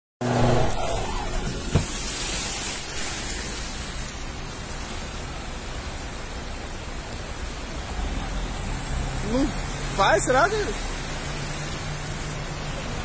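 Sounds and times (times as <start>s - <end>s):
water spray rushing: 0.9s - 5.1s.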